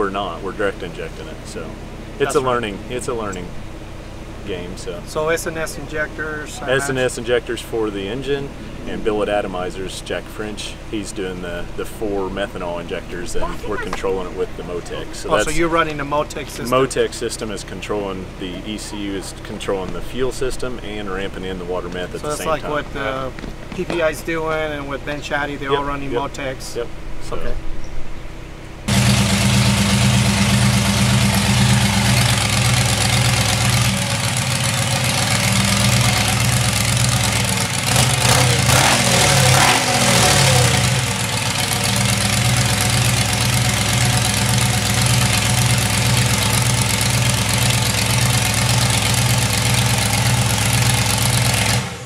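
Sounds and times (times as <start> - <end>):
dragster engine idling: 28.9 - 51.9.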